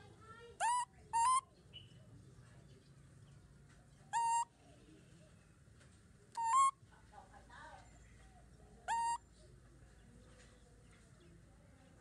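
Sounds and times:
baby macaque coo calls: 0:00.6 - 0:01.5, 0:04.1 - 0:04.5, 0:06.4 - 0:06.8, 0:08.8 - 0:09.3.

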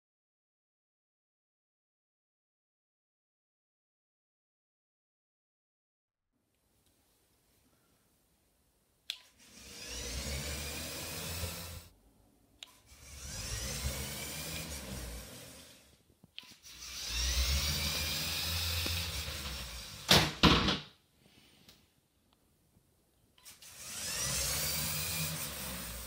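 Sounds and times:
toy motor gear whine: 0:09.2 - 0:11.9, 0:12.7 - 0:20.1, 0:23.4 - 0:26.0.

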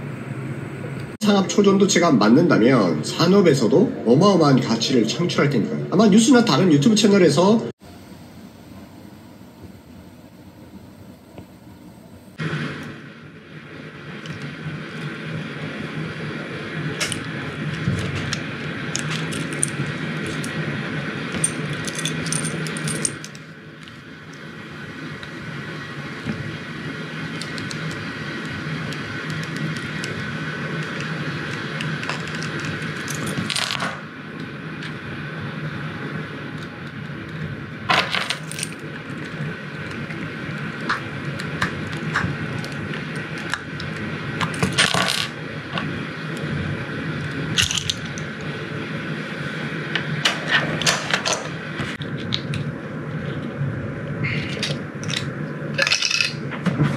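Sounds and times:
steady low hum: 0:00.0 - 0:56.9
objects clattering: 0:37.9 - 0:39.3, 0:54.4 - 0:56.9.

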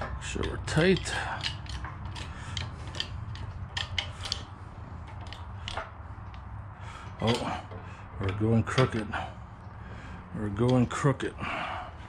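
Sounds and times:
hydraulic press metallic clicks: 0:00.0 - 0:09.2.

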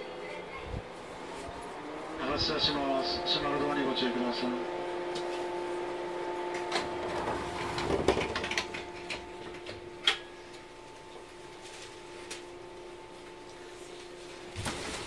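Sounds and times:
electric train humming: 0:00.0 - 0:14.9
train doors sliding shut: 0:06.5 - 0:10.3.

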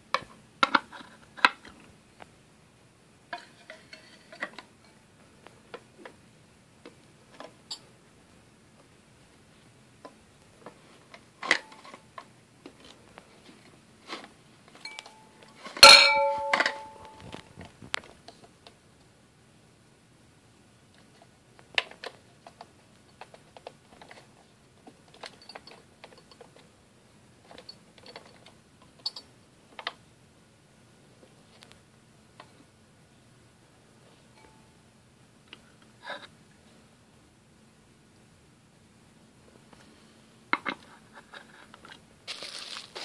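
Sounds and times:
sharp ringing clink of bowl: 0:14.9 - 0:17.2.

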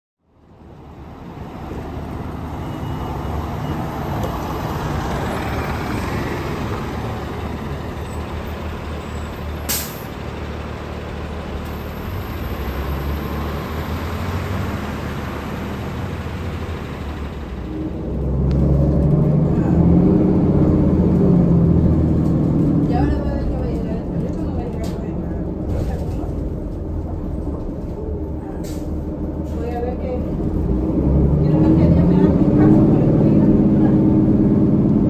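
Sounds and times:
diesel buses idling and moving: 0:00.2 - 0:35.0
air brake hiss: 0:09.7 - 0:10.1.

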